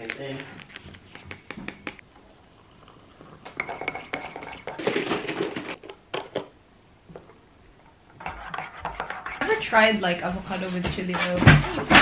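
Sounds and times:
teaspoon clinking in a mug: 3.6 - 4.8.

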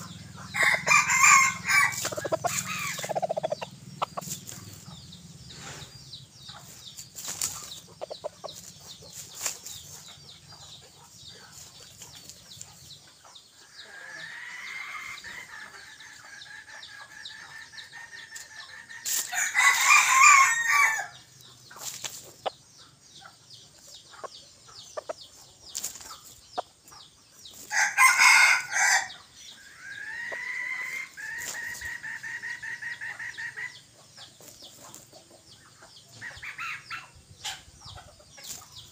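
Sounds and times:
rooster crowing: 0.5 - 3.0, 19.3 - 21.2, 27.7 - 29.2.

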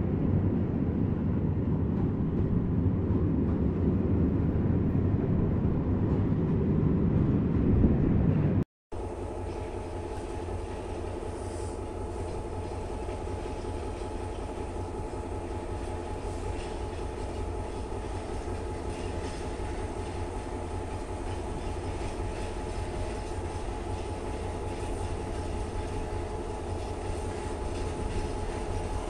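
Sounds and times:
train wheels rumbling on rail: 0.0 - 29.0
faint rail clacks: 9.4 - 29.0.

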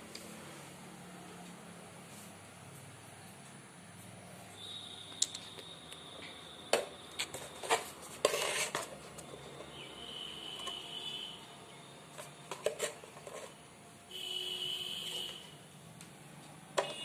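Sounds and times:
faint high whine: 4.0 - 7.9.

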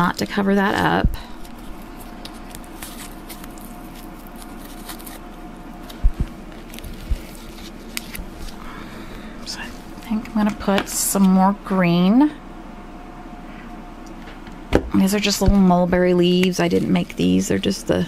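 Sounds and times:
steady background hum: 0.0 - 18.0
paper and foam rustling: 0.6 - 8.8
soft low thumps: 6.0 - 6.4.

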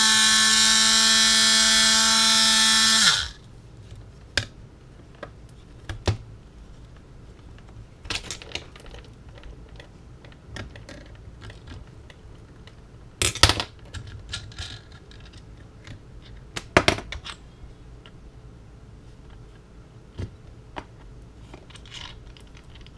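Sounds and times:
faint steady hum: 0.0 - 22.9
small parts and tools rattling: 8.0 - 17.5, 21.4 - 22.9.

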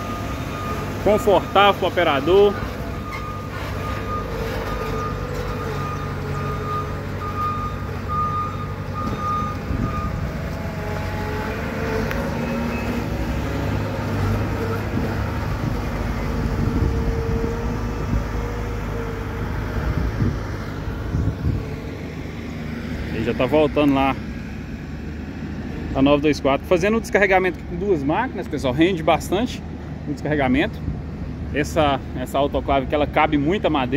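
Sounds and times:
reversing alarm beeping: 0.0 - 10.4
diesel engine running: 0.0 - 33.9.

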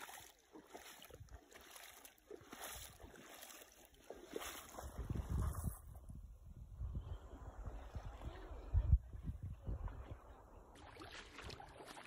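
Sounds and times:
footsteps splashing in water: 0.0 - 5.9, 10.7 - 12.0
wind buffeting microphone: 4.6 - 10.7.

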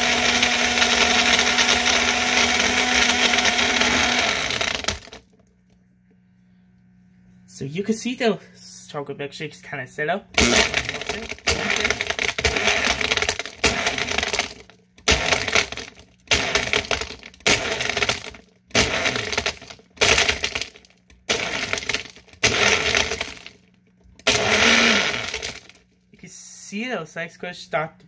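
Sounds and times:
blender crushing ice: 0.0 - 5.4, 10.4 - 25.8.

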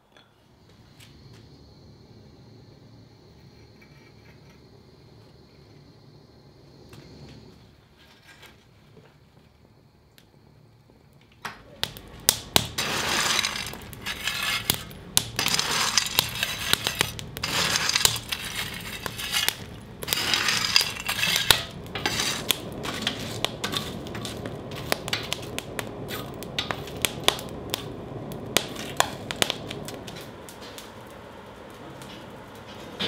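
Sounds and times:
fire crackling and popping: 6.5 - 33.0
coal clinking and scraping: 11.8 - 30.8.

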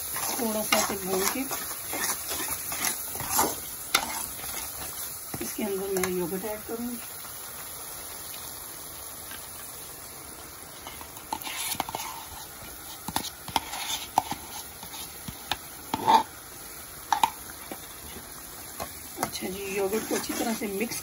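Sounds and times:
spoon scraping metal pan: 0.0 - 6.3, 10.8 - 16.3, 19.2 - 21.0
faint sizzle of frying: 0.0 - 21.0.

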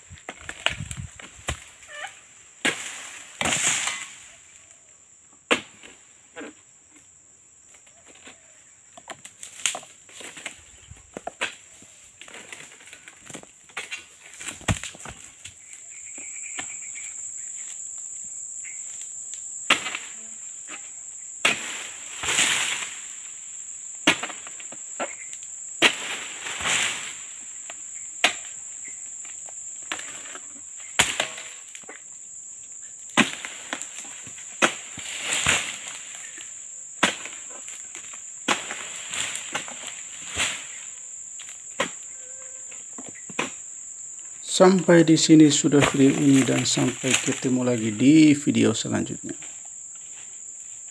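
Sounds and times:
insects droning: 0.0 - 50.9
sickle striking palm fronds: 0.3 - 4.3, 5.5 - 6.0, 9.3 - 15.7, 19.6 - 20.8, 21.4 - 23.2, 24.0 - 28.6, 29.8 - 32.0, 33.1 - 42.1, 45.5 - 48.1.

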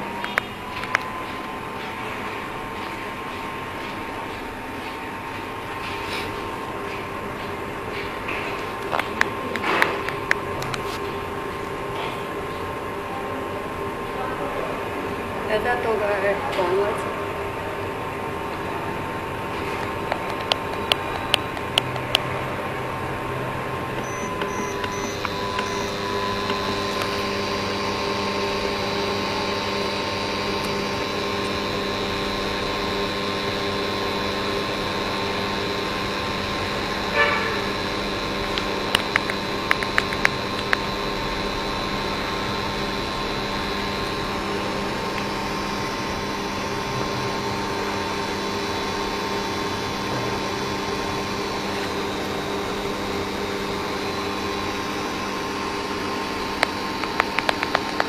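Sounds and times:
cooling fan: 0.0 - 58.0
induction cooker hum and whine: 0.0 - 58.0
sharp clicks: 38.5 - 40.9.

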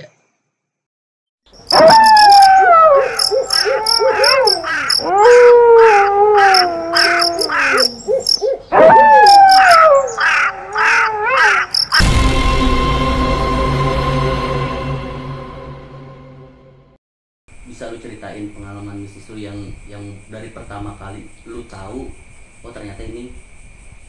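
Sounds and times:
high-pitched chirping: 1.5 - 12.1
wavering cries sliding down: 1.6 - 8.1, 8.8 - 12.0.

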